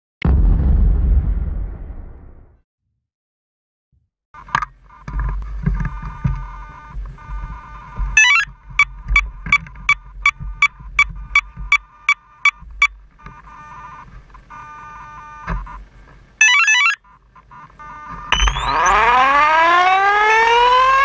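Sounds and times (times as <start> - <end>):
speed controller beeps: 7.5 - 8.5, 16.4 - 19.2
rising chirp: 18.3 - 19.1
motor spooling up whine: 18.3 - 21.0.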